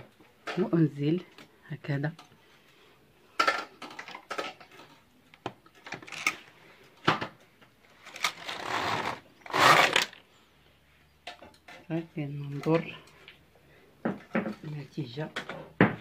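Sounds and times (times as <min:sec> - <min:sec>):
knitting machine carriage sliding: 0:05.8 - 0:06.4, 0:08.0 - 0:10.2
sliding rasps and clicks: 0:08.0 - 0:10.2.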